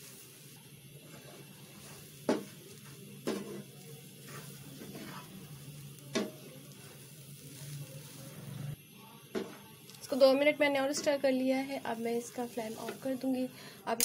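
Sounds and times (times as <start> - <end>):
spatula stirring thick mixture: 0.0 - 8.8
soft sizzle: 0.0 - 14.0.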